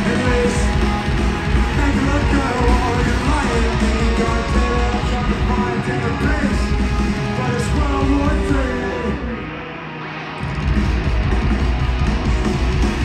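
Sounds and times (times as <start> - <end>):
punk rock music: 0.0 - 13.0.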